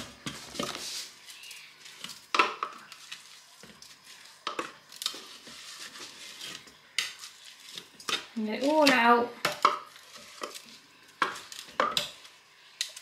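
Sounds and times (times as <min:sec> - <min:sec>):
spatula scraping plastic bowl: 0:05.0 - 0:09.2.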